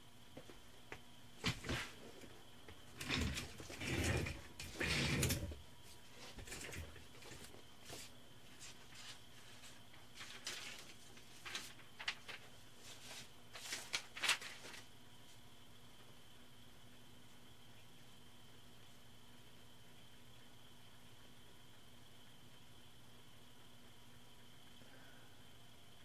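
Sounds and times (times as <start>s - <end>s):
faint steady hum: 0.0s - 26.0s
rustling and handling noises: 0.3s - 15.4s.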